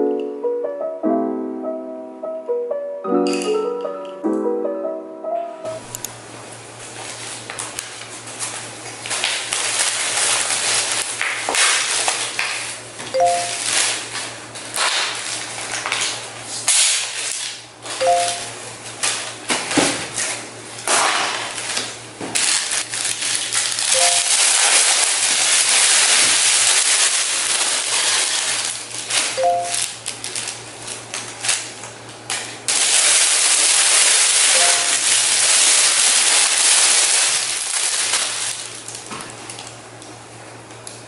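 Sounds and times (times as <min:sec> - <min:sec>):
two-note tone: 0:00.0 - 0:05.9, 0:13.2 - 0:13.7, 0:18.0 - 0:18.6, 0:24.0 - 0:24.4, 0:29.4 - 0:29.9, 0:34.6 - 0:35.0
plastic packaging crinkling: 0:06.8 - 0:39.8.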